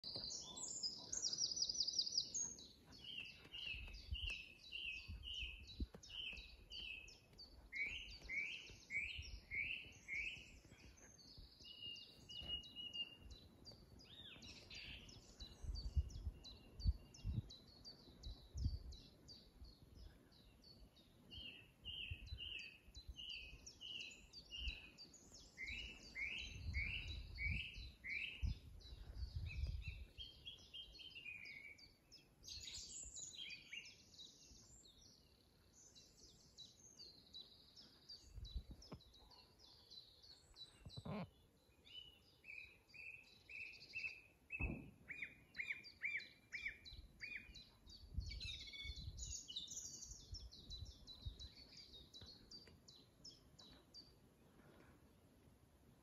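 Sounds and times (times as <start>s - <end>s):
birds high trills and twitters: 36.0s - 54.2s.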